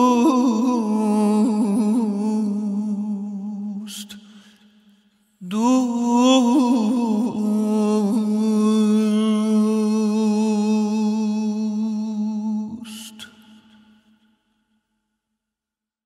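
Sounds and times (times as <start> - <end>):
man singing classical vocals: 0.0 - 4.3, 5.4 - 13.6.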